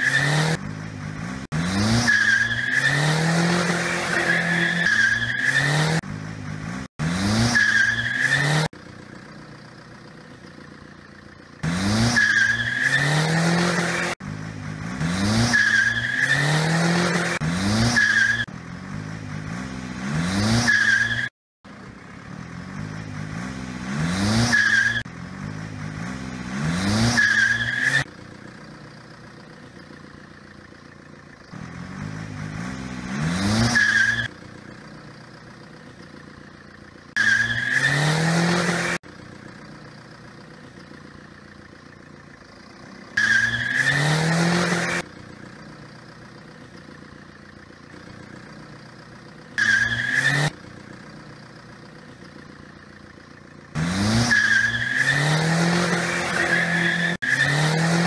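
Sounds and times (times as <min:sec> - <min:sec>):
tyres screeching: 0:00.0 - 0:06.0, 0:07.2 - 0:08.7, 0:11.7 - 0:14.2, 0:15.2 - 0:18.5, 0:20.0 - 0:21.4, 0:23.9 - 0:25.1, 0:26.5 - 0:28.1, 0:31.5 - 0:34.4, 0:35.8 - 0:39.0, 0:43.0 - 0:45.1, 0:49.3 - 0:50.6, 0:53.8 - 0:58.0
car engine revving: 0:00.0 - 0:58.0.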